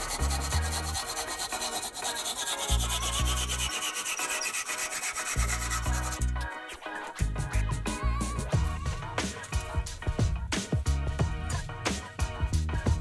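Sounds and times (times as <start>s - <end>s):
low bass background music: 0.0s - 1.2s, 2.7s - 3.7s, 5.4s - 13.0s
hand file rasping on wood: 0.0s - 6.4s.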